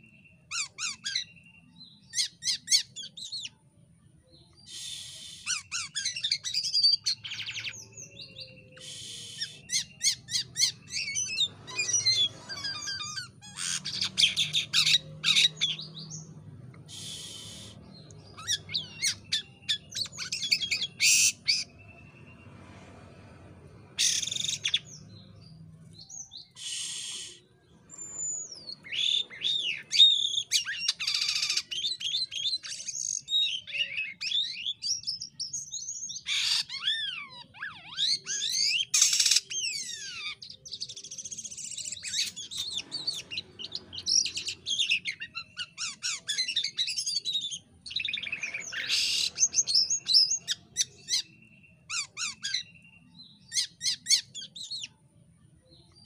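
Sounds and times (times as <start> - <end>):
starling singing: 0.0 - 3.6, 4.5 - 55.0.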